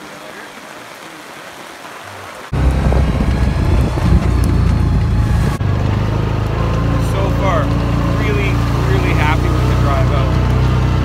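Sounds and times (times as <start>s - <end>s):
engine droning: 2.5s - 11.0s.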